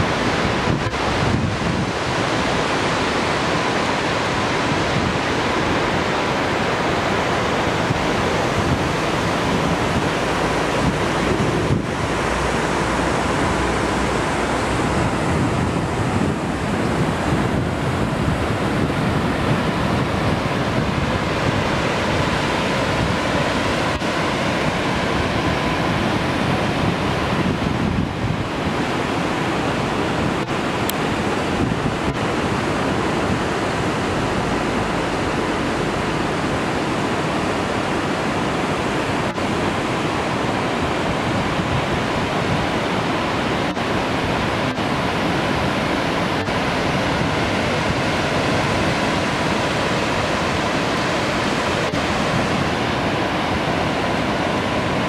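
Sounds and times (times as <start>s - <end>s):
waterfall rushing: 0.0s - 55.0s.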